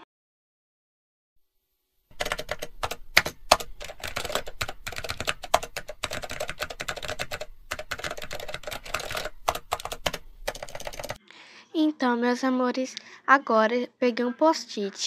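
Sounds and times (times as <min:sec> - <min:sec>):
computer keyboard typing: 0:02.1 - 0:11.2.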